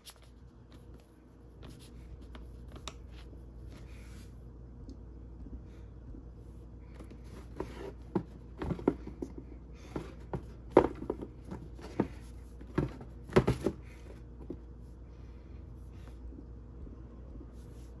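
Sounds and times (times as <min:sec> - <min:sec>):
sneakers knocking on cardboard box: 0:07.4 - 0:14.6.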